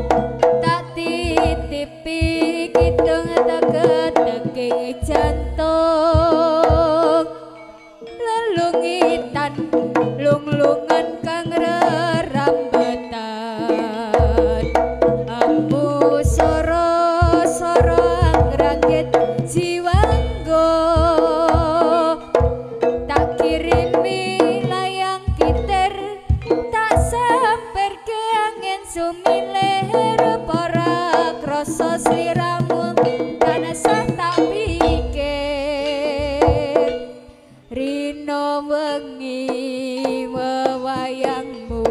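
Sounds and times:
gong percussion: 0.0 - 13.1, 13.7 - 27.5, 29.2 - 37.4
wavering vibrato melody: 0.0 - 16.8
kendang hand drums: 0.0 - 41.9.

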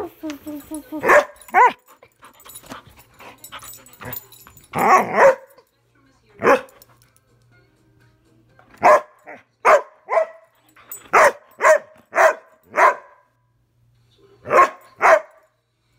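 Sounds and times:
dog barking: 1.0 - 1.8, 4.8 - 5.6, 6.4 - 6.8, 8.8 - 10.5, 11.1 - 13.3, 14.4 - 15.4.

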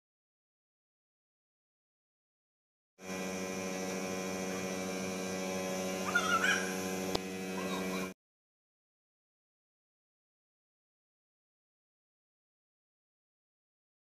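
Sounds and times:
electrical hum: 3.0 - 8.2.

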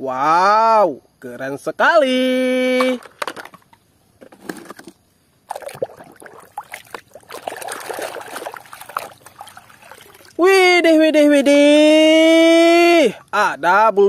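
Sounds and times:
plastic clicks and knocks: 3.0 - 5.0
water splashing and trickling: 5.4 - 10.9.

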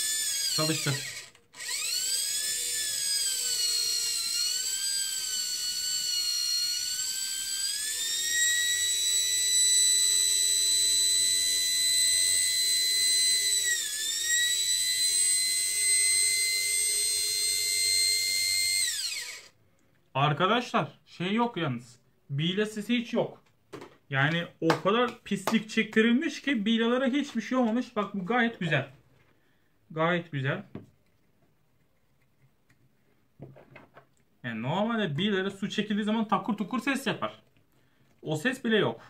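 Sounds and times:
electric motor whining: 0.0 - 19.6.

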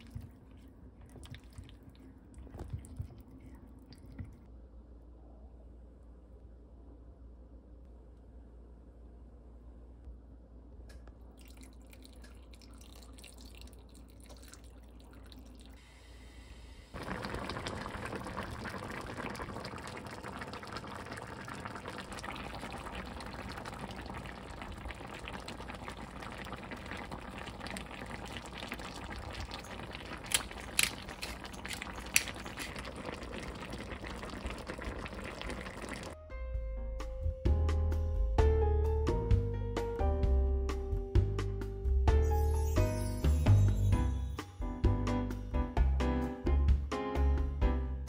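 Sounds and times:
stew boiling and bubbling: 0.0 - 4.5, 11.2 - 15.9, 16.9 - 36.2
ingredients clicking into pot: 29.9 - 33.0.

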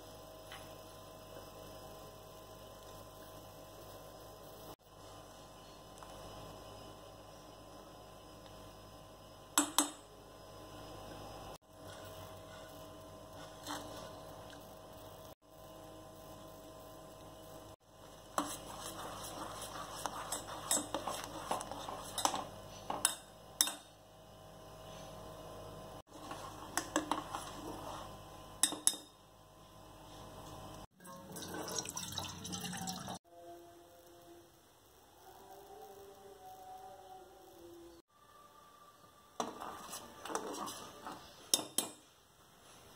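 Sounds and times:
steady electrical hum: 0.0 - 32.8
metal spoon scraping a pot: 13.4 - 14.2, 18.3 - 23.8, 39.4 - 42.0.

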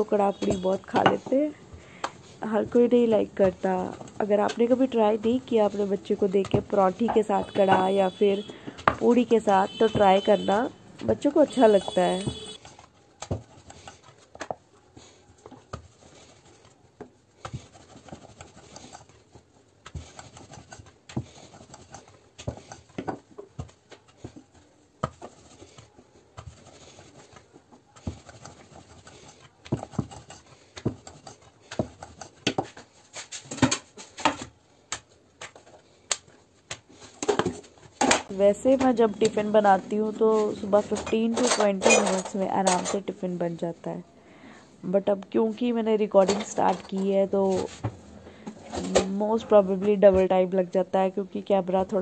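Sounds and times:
rolling pin on wooden board: 15.4 - 39.6.

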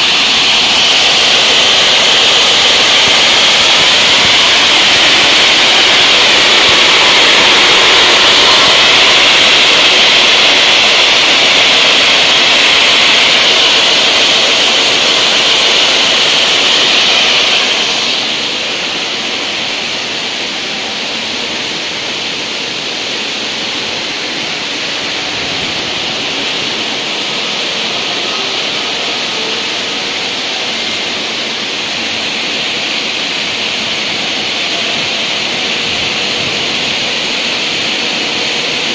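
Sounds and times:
saw blades cutting stone: 0.0 - 18.8.

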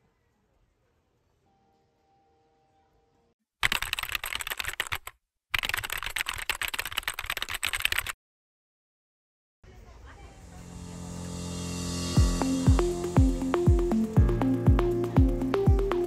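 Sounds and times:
keyboard typing clicks: 3.6 - 8.2.

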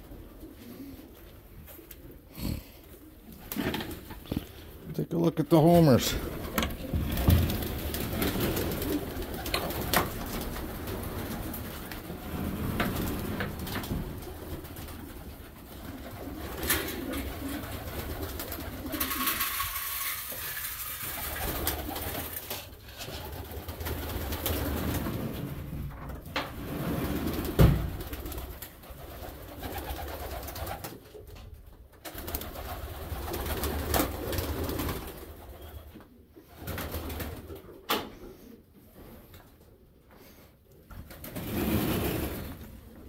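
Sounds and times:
pigeons cooing: 6.1 - 20.1.

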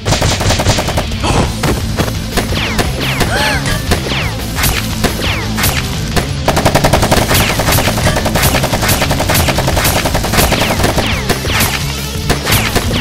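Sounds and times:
rapid automatic gunfire: 0.0 - 1.2, 6.4 - 13.0
background music: 0.0 - 13.0.

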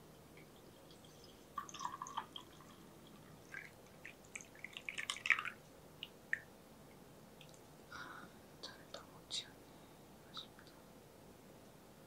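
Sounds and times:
tea pouring into a mug: 0.9 - 5.6.

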